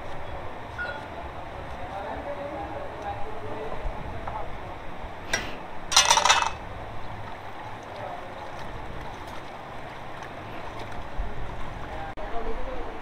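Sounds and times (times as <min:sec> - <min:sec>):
water sloshing in a plastic basin: 0:05.9 - 0:12.1.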